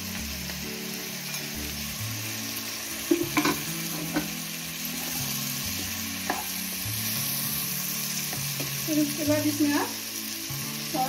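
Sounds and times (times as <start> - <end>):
vegetables sizzling in oil: 0.0 - 11.0
sharp knocks on pan: 3.1 - 4.3.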